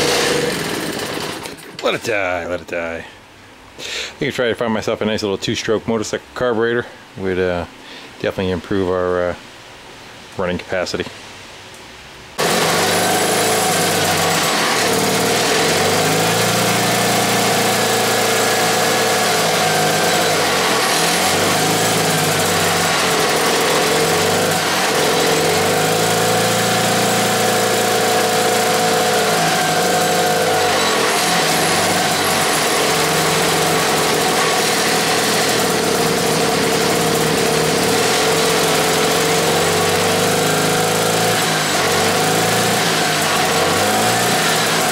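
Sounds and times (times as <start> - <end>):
two-stroke engine running: 0.0 - 2.0, 12.4 - 44.9.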